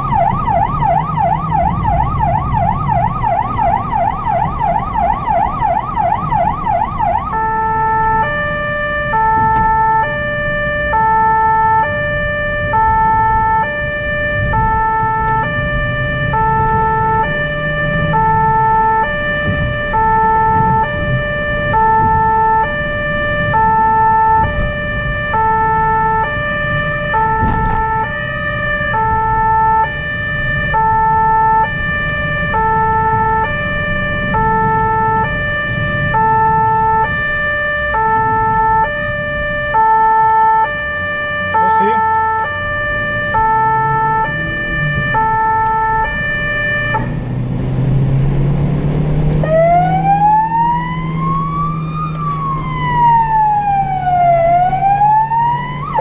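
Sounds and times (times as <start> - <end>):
car engine rumble and road noise: 0.0 - 56.0
two-tone emergency siren: 0.0 - 56.0.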